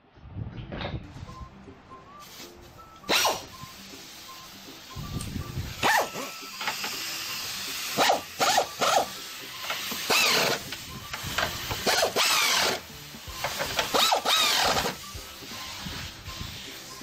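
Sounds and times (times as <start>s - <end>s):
ratchet wrench rasping: 5.2s - 15.8s.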